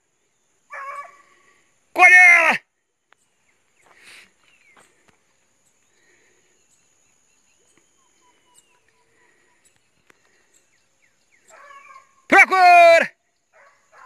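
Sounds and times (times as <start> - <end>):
high insect hum: 0.0 - 14.0
distant bird notes: 2.9 - 12.3.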